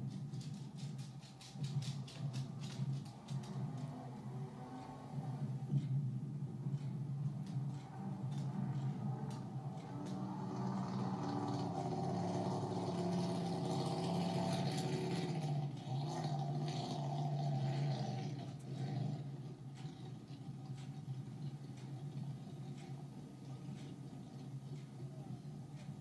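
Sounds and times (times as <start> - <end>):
race boat engine droning: 3.1 - 26.0.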